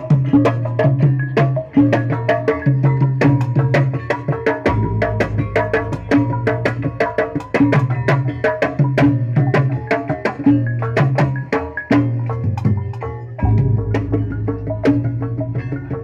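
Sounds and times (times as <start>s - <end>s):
gamelan percussion music: 0.0s - 16.0s
low drum notes: 4.6s - 8.4s, 12.0s - 16.0s.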